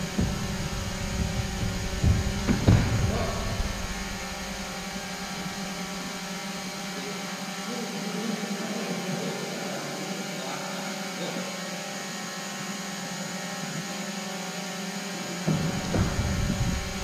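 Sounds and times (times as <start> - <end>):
hall hiss and low hum: 0.0 - 7.1, 15.5 - 17.0.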